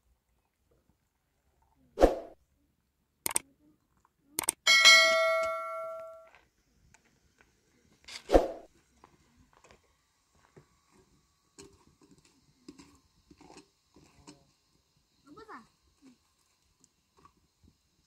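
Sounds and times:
metal vessel struck ringing: 4.7 - 6.3.

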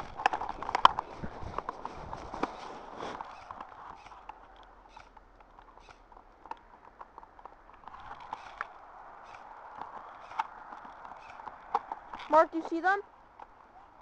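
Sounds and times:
crunching in snow: 0.0 - 4.2.

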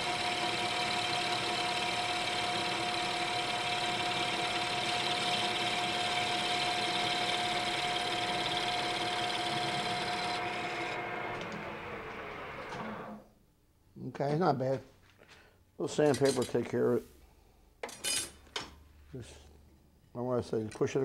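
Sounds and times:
lathe whining: 0.0 - 13.2.

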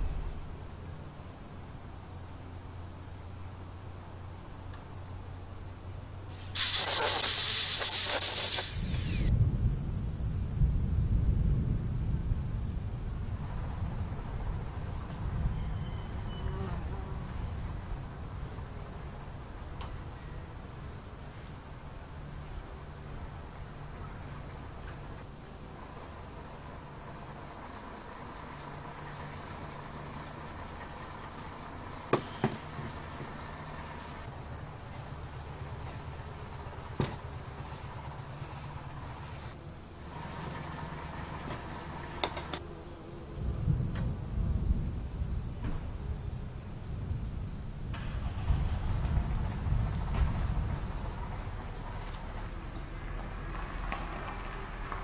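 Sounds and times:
crickets chirping: 0.0 - 55.0
angle grinder wire brush on metal: 6.4 - 9.3.

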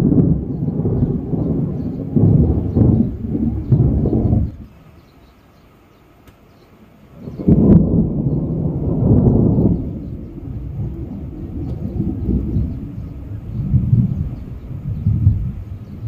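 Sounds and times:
thunder rumbling: 0.0 - 4.9, 7.1 - 16.0.

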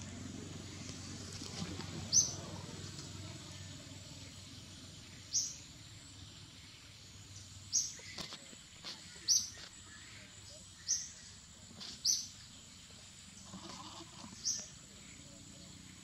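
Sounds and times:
bird chirping: 2.1 - 2.4, 4.6 - 13.0.

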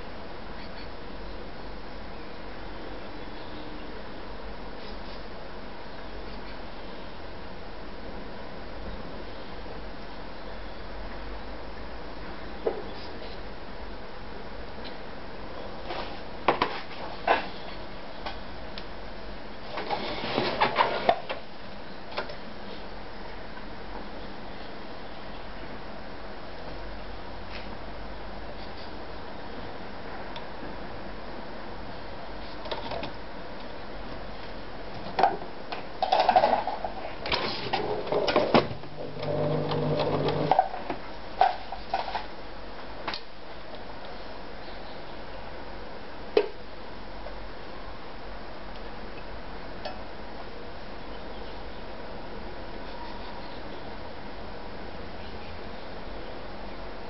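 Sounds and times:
sewing machine scraping on table: 19.8 - 21.0
sewing machine low hum: 37.8 - 40.6.

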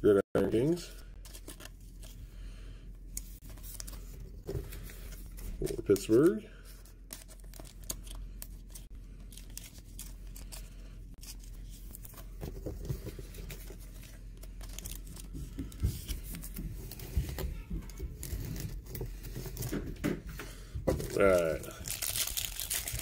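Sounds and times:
trading cards rustling: 1.1 - 2.5, 3.1 - 19.8, 21.0 - 23.0
plastic wrapper crinkling: 21.0 - 23.0.

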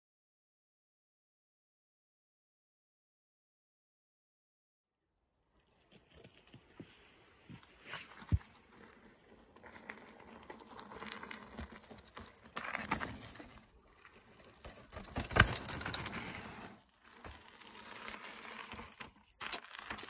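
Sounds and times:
bike tyres crunching on gravel: 5.6 - 20.0.

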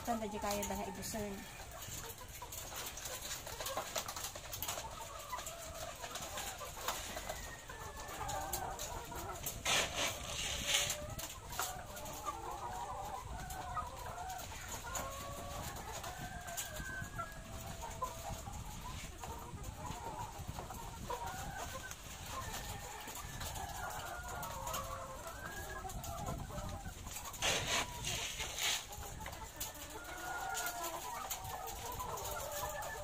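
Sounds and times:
hens clucking: 0.0 - 33.0.

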